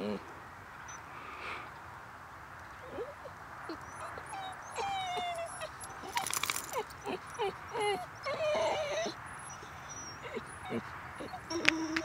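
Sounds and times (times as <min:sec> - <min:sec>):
dog whining and yelping: 0:02.8 - 0:12.0.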